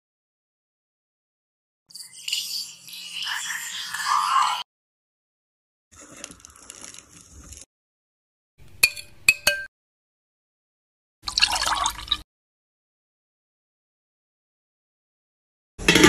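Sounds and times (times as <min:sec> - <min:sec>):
liquid pouring splash: 0:06.0 - 0:07.7, 0:11.3 - 0:12.2
spoon clinking against glass: 0:08.8 - 0:09.7.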